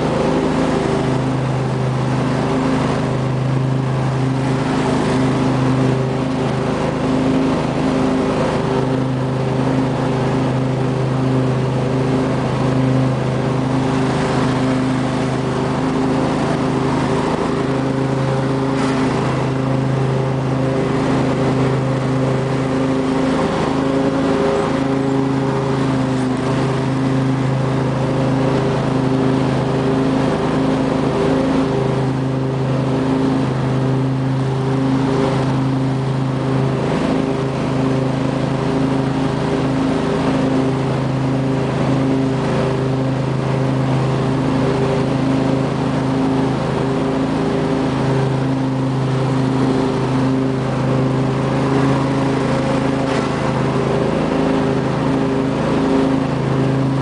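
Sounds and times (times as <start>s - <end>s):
lawn tractor engine droning: 0.0s - 57.0s.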